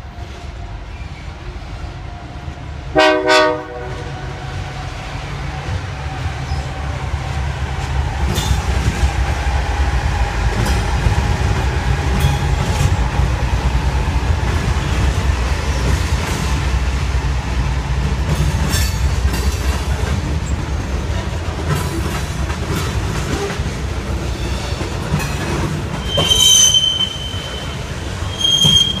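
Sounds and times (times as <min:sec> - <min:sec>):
freight train rumbling: 0:00.0 - 0:29.0
wheels clicking over rail joints: 0:18.0 - 0:26.5
high-pitched wheel squeals: 0:26.0 - 0:29.0.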